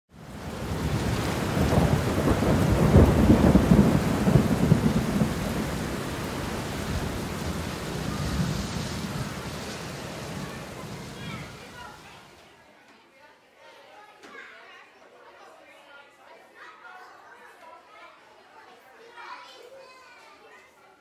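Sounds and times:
steady rain: 0:00.1 - 0:12.5
thunder rolling: 0:00.2 - 0:12.3.

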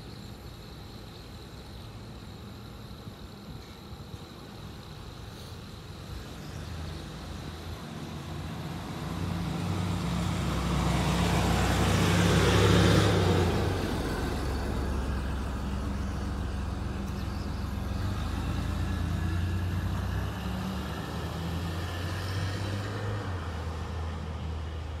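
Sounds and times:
vehicle passing by: 0:06.3 - 0:25.0.

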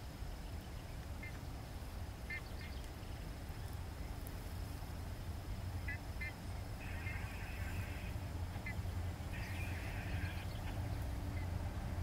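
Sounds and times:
distant locomotive rumble: 0:01.5 - 0:12.0
bird chirping: 0:02.2 - 0:04.2, 0:04.9 - 0:11.6.

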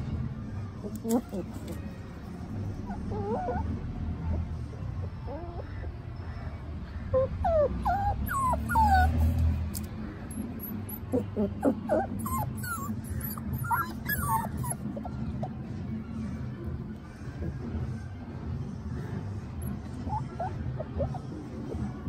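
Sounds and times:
puppies whimpering: 0:02.7 - 0:05.9, 0:07.0 - 0:16.0, 0:19.6 - 0:22.0.

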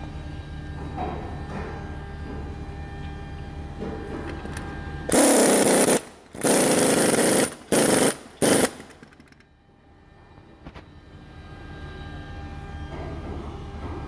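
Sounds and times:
impact wrench bursts: 0:05.1 - 0:09.4.

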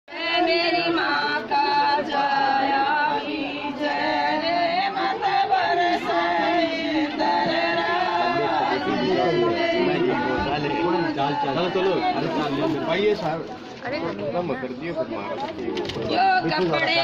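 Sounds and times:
women singing unaccompanied: 0:00.1 - 0:12.8.

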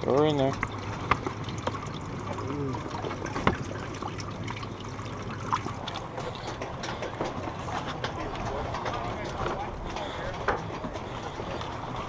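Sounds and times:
water trickling and splashing: 0:00.0 - 0:12.0.

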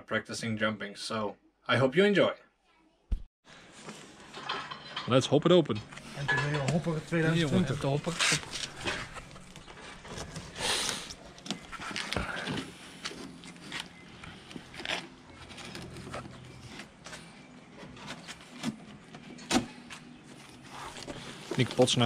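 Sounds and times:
cardboard and tape rustling: 0:06.0 - 0:22.0.

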